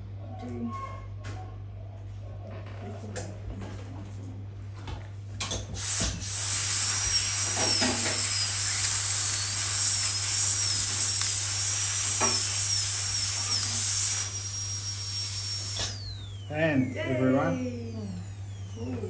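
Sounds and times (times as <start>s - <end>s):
dental drill whining: 5.6s - 19.0s
loud hiss: 5.8s - 18.4s.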